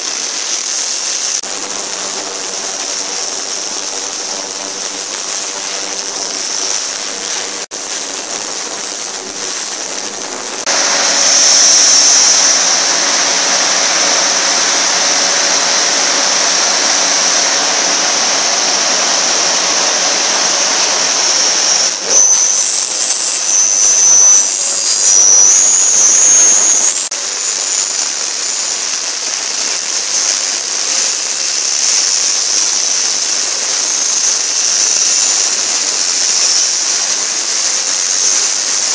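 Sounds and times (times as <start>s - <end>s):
high-pitched whine: 0.0s - 38.9s
loud steady hiss: 0.0s - 38.9s.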